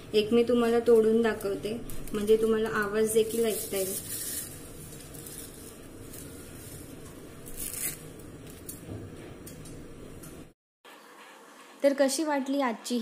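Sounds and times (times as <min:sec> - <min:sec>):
crisp snack crackling: 0:03.1 - 0:06.3.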